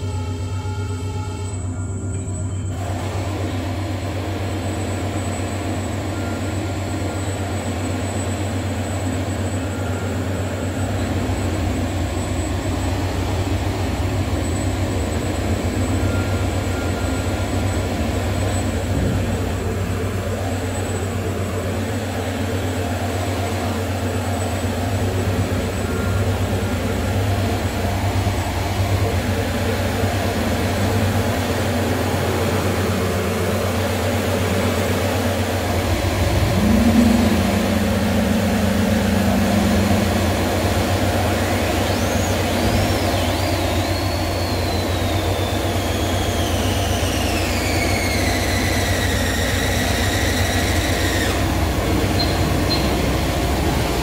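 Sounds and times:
experimental drone music: 7.0 - 54.0.

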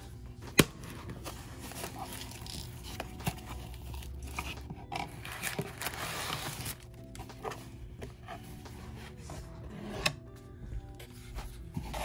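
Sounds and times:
plastic packing crinkling: 5.0 - 7.2.

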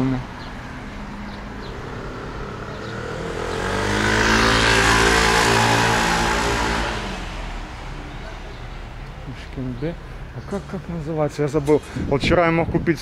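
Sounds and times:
car engine hum passing: 0.0 - 11.6
road noise: 0.0 - 13.0.

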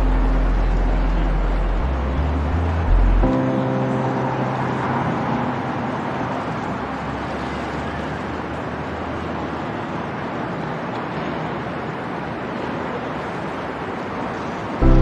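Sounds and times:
background music: 0.0 - 6.2
city traffic: 0.0 - 15.0
river rushing: 0.0 - 15.0.

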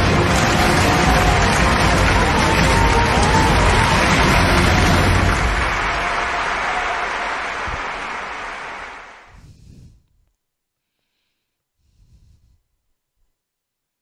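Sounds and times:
applause: 0.0 - 9.4.

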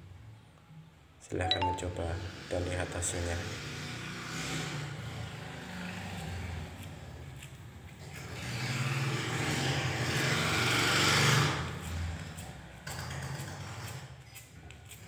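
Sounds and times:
vehicle engine noise: 3.3 - 14.0.

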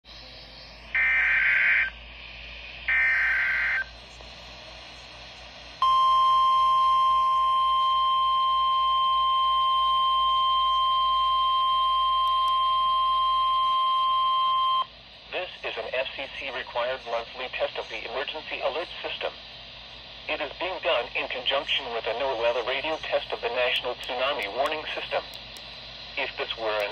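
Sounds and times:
steady weather alert tone: 0.8 - 2.0, 2.9 - 4.0, 20.3 - 26.9.

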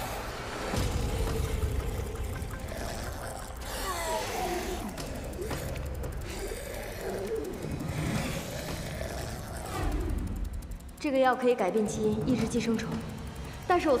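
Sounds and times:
creature moaning and groaning: 0.0 - 10.6
low steady rumble: 0.4 - 14.0.

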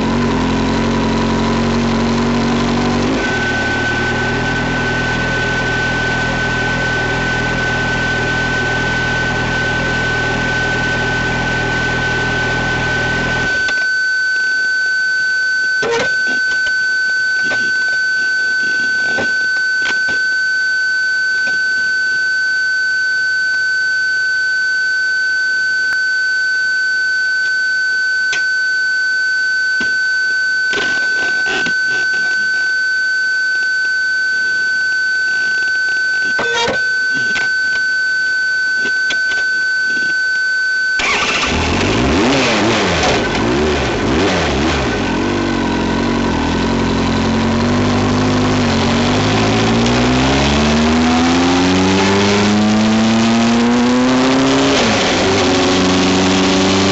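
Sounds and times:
vehicle engine accelerating: 0.0 - 13.5, 41.0 - 56.9
high-pitched electronic tone: 2.0 - 56.9.

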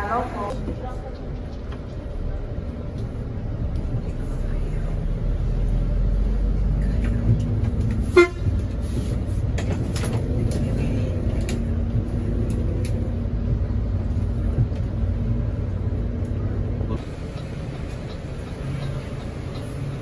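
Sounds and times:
vehicle horn toot: 8.1 - 8.5
diesel engine idling: 10.2 - 20.0.

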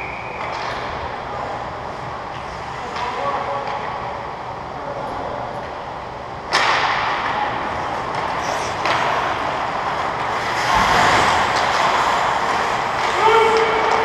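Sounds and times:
skate blades scraping ice: 7.7 - 14.0.

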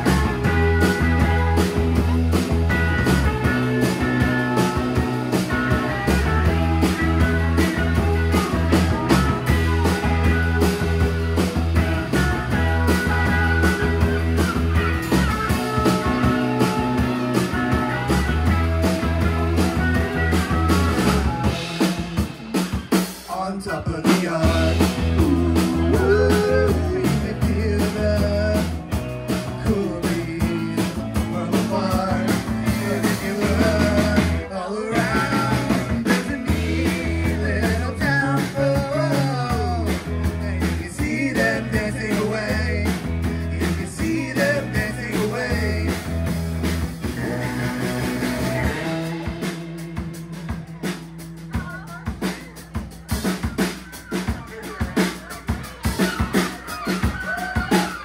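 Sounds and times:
live rock band playing: 0.0 - 58.0
person singing: 23.3 - 28.9, 29.5 - 46.1.

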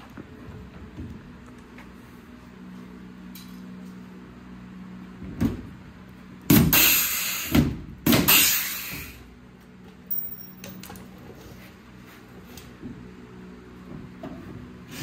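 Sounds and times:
air hiss: 6.7 - 7.6, 8.3 - 9.2.

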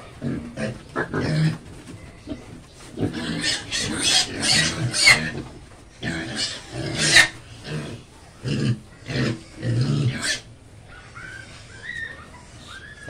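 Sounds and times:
young pigs grunting and squealing: 0.0 - 13.0.

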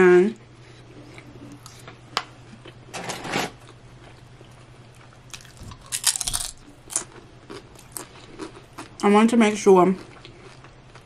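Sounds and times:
soft chewing: 0.4 - 2.8, 3.6 - 9.1, 9.9 - 11.0
chip crunching: 5.0 - 9.1.

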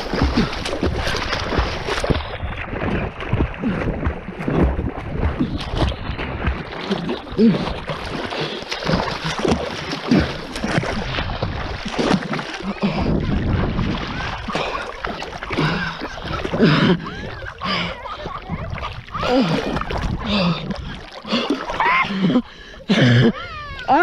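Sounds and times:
swimmer gasping: 0.0 - 4.0, 6.7 - 24.0
water splashing and sloshing: 0.0 - 24.0.

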